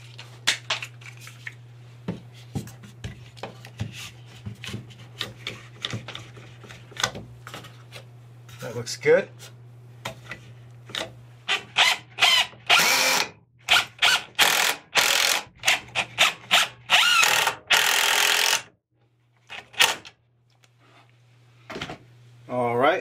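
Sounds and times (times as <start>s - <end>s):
cordless drill boring into wood: 11.8s - 18.7s.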